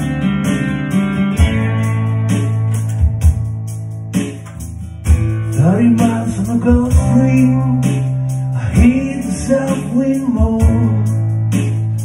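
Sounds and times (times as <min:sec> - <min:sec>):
strummed acoustic guitar: 0:00.0 - 0:12.0
sustained keyboard chords: 0:00.0 - 0:12.0
man singing: 0:05.4 - 0:11.3.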